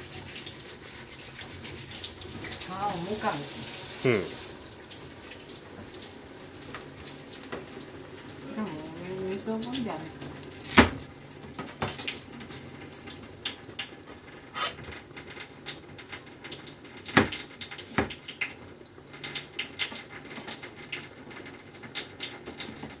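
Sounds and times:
faint water-like hiss: 0.0s - 4.6s, 14.5s - 14.9s.

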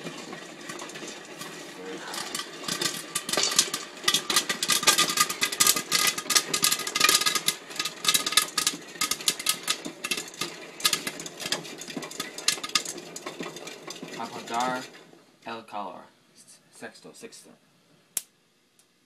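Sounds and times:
popcorn popping: 0.0s - 15.1s
crank mechanism rattling: 0.0s - 15.2s.

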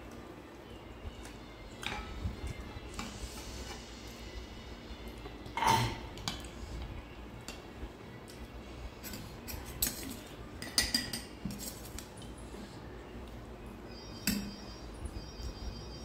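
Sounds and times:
utensils clinking on plates: 1.7s - 3.9s, 5.2s - 7.7s, 8.9s - 12.5s, 14.0s - 14.7s.

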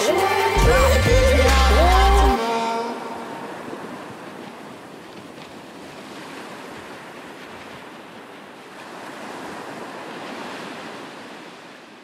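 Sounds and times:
sea waves breaking over rocks: 2.4s - 12.0s.

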